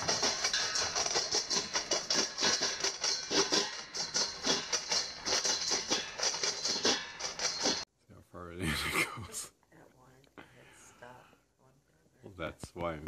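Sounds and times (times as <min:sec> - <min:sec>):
kibble rattling in metal bowl: 0:00.0 - 0:07.8.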